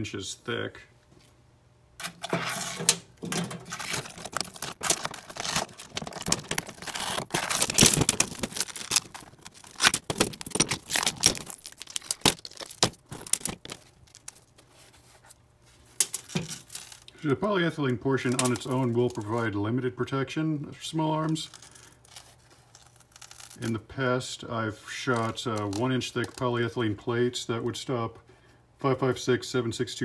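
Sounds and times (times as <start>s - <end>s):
ceramic fragments crackling and clicking: 3.2s - 14.5s, 16.0s - 17.1s.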